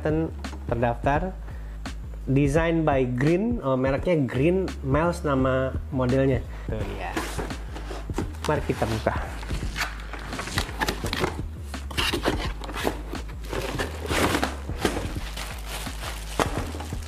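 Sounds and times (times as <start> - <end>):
cardboard scraping and tearing: 7.1 - 17.0
plastic bag crinkling: 12.7 - 17.0.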